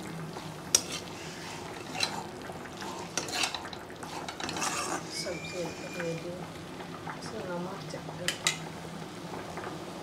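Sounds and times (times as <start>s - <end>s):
light sizzle of vegetables: 0.0s - 10.0s
spatula scraping a pan: 0.7s - 6.3s.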